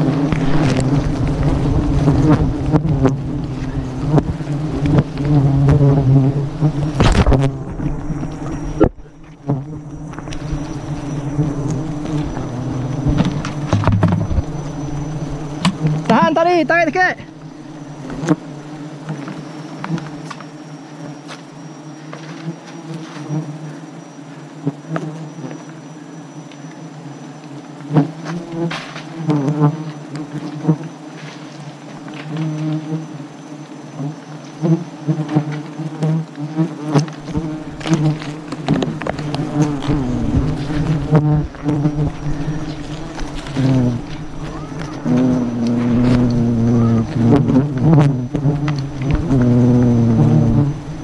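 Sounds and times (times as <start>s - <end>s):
bees buzzing: 0.0s - 51.0s
handling knocks and clicks: 13.1s - 14.5s.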